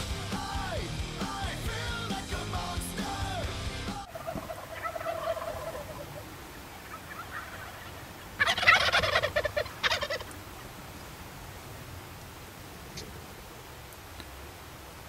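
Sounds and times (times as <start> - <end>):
wild turkey gobbling: 4.0 - 10.7.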